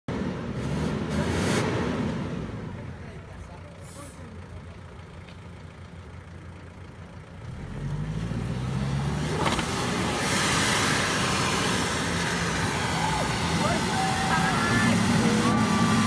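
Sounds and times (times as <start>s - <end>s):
off-road vehicle engine revving: 0.1s - 2.9s, 7.4s - 16.0s.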